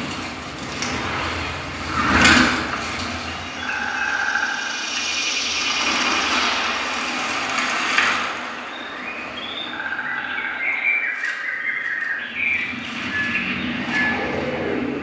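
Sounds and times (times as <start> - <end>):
rushing whoosh: 0.0 - 9.4, 12.6 - 15.0.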